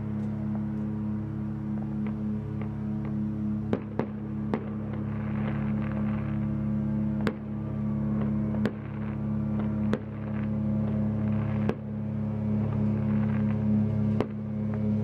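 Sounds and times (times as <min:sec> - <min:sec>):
low mechanical hum: 0:00.0 - 0:15.0
fireworks bangs: 0:08.2 - 0:11.9.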